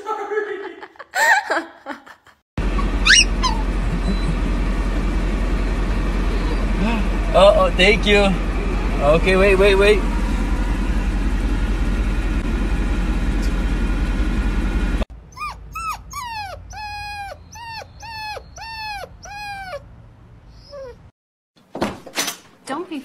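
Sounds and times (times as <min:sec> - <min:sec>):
car engine rumble and cabin noise: 0:02.6 - 0:16.7
puppy whining: 0:02.8 - 0:04.4, 0:06.2 - 0:06.8, 0:15.3 - 0:19.9, 0:20.5 - 0:21.2.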